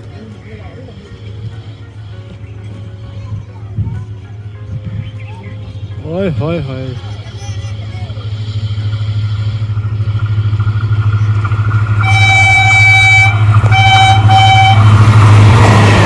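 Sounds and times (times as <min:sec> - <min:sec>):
deep locomotive rumble: 0:00.0 - 0:16.0
locomotive horn blasts: 0:12.0 - 0:15.2.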